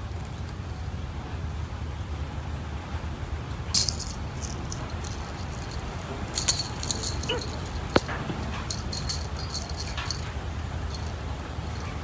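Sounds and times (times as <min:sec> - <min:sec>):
small jingle bells jingling: 0:03.7 - 0:12.0.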